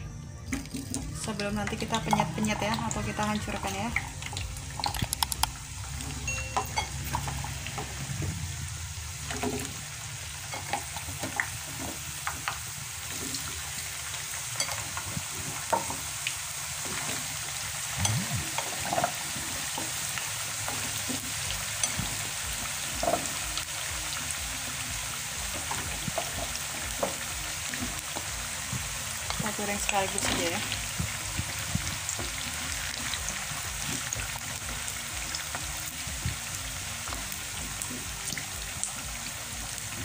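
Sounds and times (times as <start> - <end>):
potatoes sizzling in hot oil: 0.8 - 40.0.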